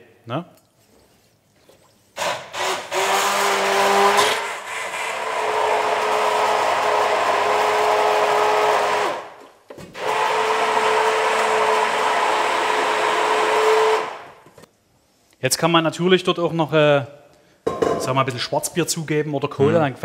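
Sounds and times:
immersion blender motor whine: 2.2s - 9.3s, 10.0s - 14.2s.

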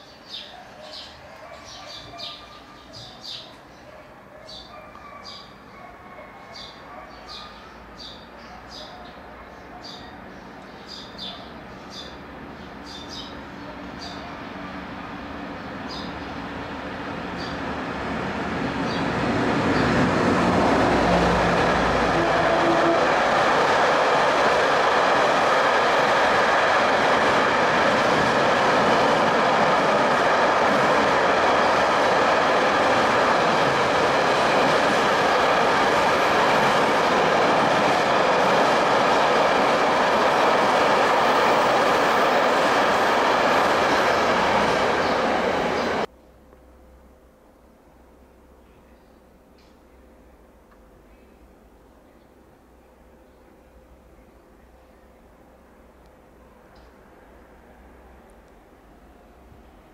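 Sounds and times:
train wheels rattling on rails: 18.8s - 46.1s.

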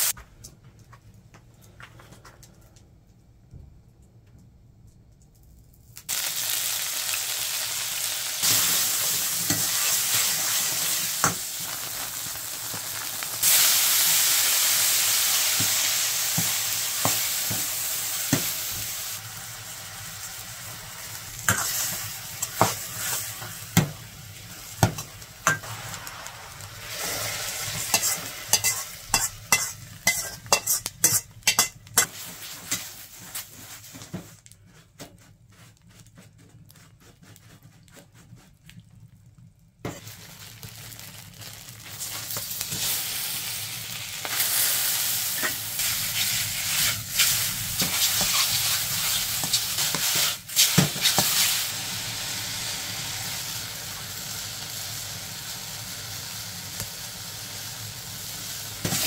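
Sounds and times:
food sizzling in a wok: 6.0s - 34.0s, 39.9s - 59.0s
metal utensil scraping a wok: 21.5s - 23.6s, 26.9s - 33.0s, 45.4s - 51.6s.

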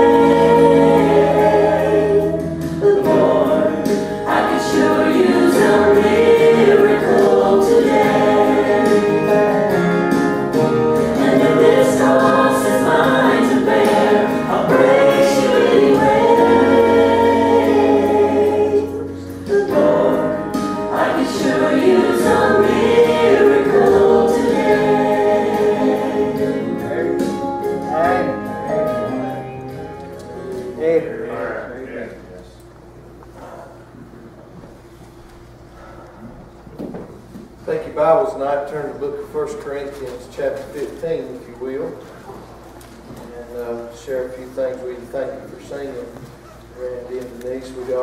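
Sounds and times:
man and woman singing gospel: 0.0s - 29.3s
held low accompaniment notes: 0.0s - 32.4s.

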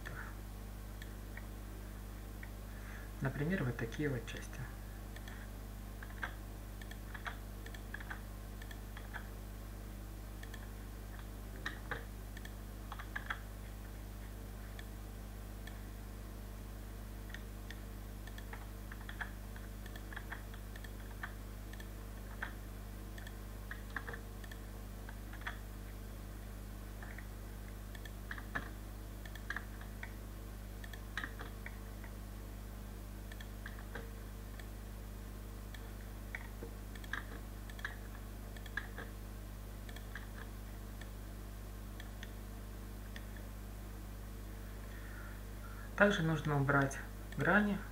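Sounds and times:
low electrical hum: 0.0s - 47.9s
mouse and keyboard clicking: 5.2s - 9.3s, 10.4s - 13.4s, 17.3s - 25.6s, 27.9s - 30.2s, 30.8s - 32.2s, 35.7s - 39.1s, 39.9s - 41.1s.

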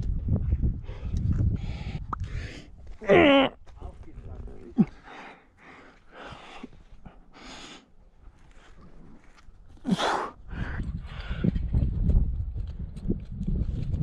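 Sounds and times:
person breathing hard: 0.8s - 2.8s, 4.8s - 8.0s, 9.8s - 11.6s
person grunting: 3.0s - 3.6s.

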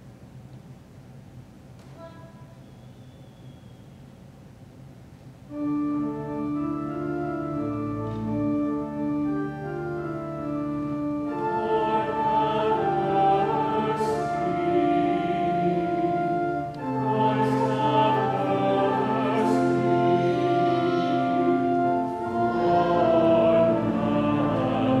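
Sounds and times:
church organ chords: 5.5s - 25.0s.

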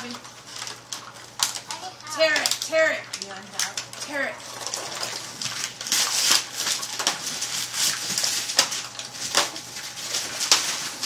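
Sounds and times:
wrapping paper tearing and crumpling: 0.0s - 11.0s.

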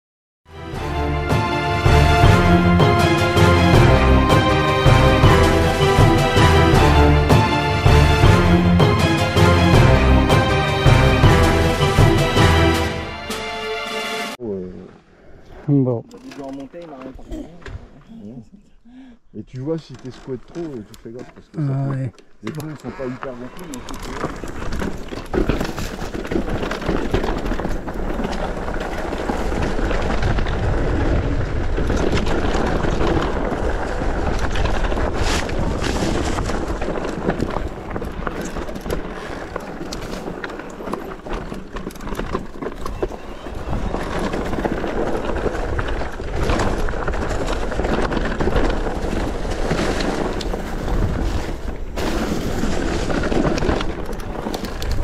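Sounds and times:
bike tyres on gravel: 19.5s - 55.0s
bike rattling and knocking: 24.0s - 55.0s.

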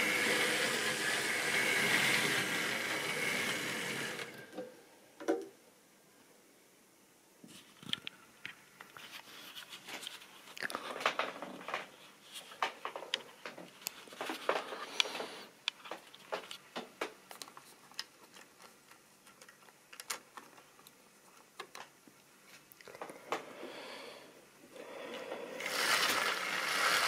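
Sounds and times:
plastic model wagons clicking: 25.6s - 27.0s.

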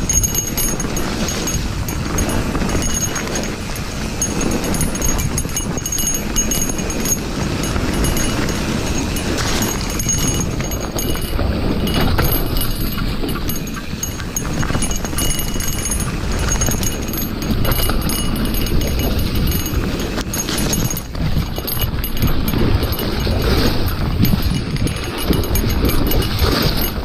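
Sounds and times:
bike knocking and rattling: 0.0s - 27.0s
bike tyres on gravel trail: 0.8s - 21.5s.

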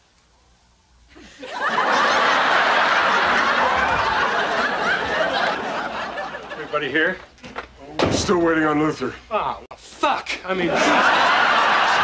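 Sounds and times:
audience laughter: 1.2s - 6.9s, 10.6s - 12.0s.

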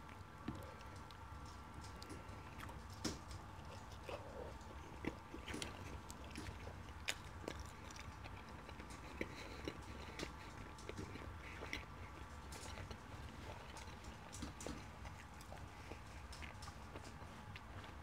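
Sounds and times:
wet chewing: 0.0s - 18.0s.

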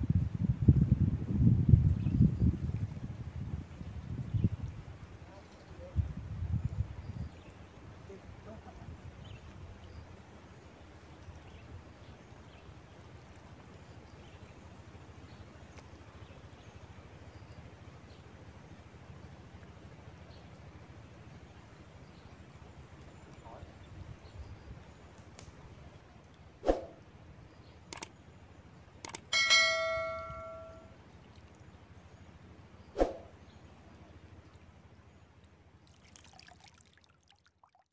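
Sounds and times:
quick double clicks: 27.9s - 28.1s, 29.0s - 29.3s
faint high chirps: 29.0s - 30.9s
notification bell ding: 29.3s - 30.9s.

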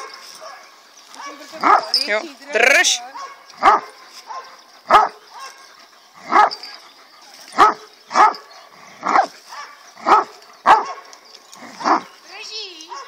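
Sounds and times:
dog barking: 0.0s - 1.9s, 3.1s - 6.7s, 7.6s - 11.1s, 11.8s - 12.1s.

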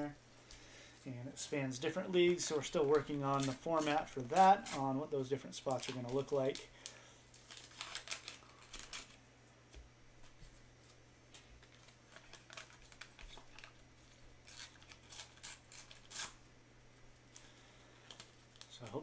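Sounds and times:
wrapper tearing and crinkling: 5.7s - 9.2s, 11.6s - 16.4s.

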